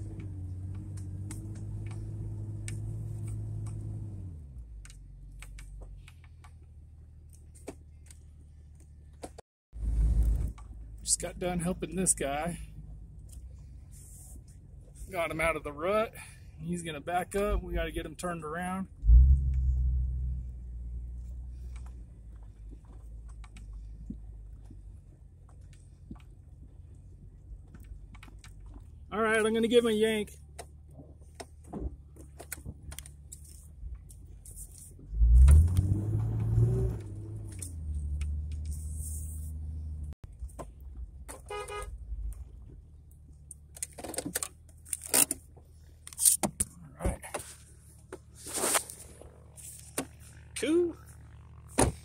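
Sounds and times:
clunks and rustles: 30.5s - 38.7s, 43.5s - 50.5s
vehicle engine idling: 37.0s - 52.0s
car horn toot: 41.3s - 42.0s.

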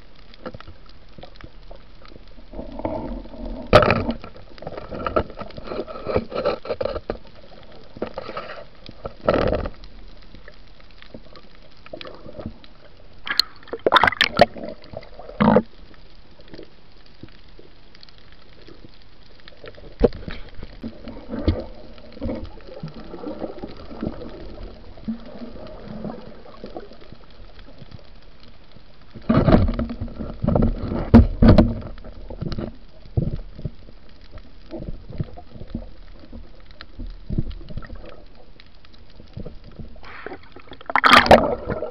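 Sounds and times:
muffled underwater water noise: 0.0s - 41.9s
rushing water: 0.0s - 41.9s
knocks and thumps underwater: 2.6s - 7.2s, 8.0s - 9.8s, 13.2s - 15.7s, 19.9s - 26.2s, 29.2s - 33.8s, 34.7s - 38.2s, 39.3s - 41.9s.

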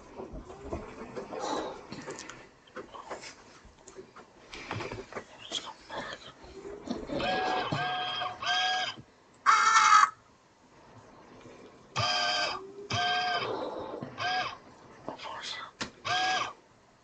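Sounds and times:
crows cawing: 7.7s - 10.2s.

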